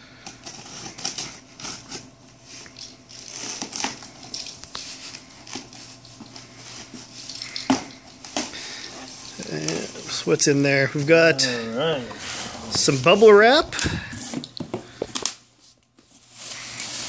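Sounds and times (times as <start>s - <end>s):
plastic packing crinkling: 0.4s - 10.3s, 16.0s - 17.0s
box cutter slitting tape: 3.2s - 4.0s.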